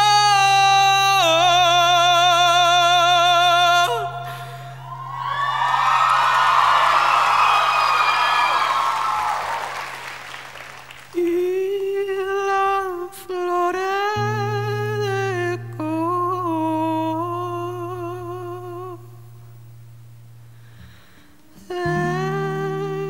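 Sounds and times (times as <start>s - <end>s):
crowd cheering: 4.8s - 11.2s
man humming a slow melody: 11.2s - 19.4s, 21.3s - 23.0s.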